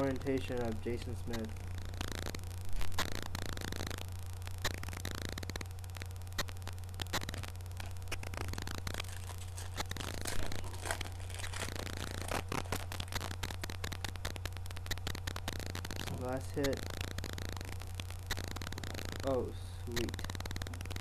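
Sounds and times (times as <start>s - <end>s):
small irregular clicks: 0.0s - 21.0s
steady low hum: 0.0s - 21.0s
card pack crinkling and tearing: 7.0s - 14.4s.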